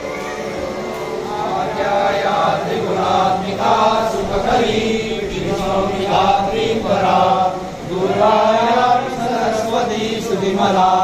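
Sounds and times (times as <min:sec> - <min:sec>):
voices chanting a hymn: 0:00.0 - 0:11.0.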